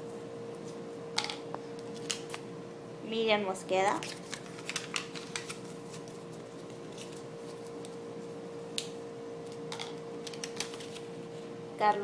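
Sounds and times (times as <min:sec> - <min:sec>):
faint steady hum: 0:00.0 - 0:12.0
paper folding and crinkling: 0:03.9 - 0:08.0, 0:10.2 - 0:11.2.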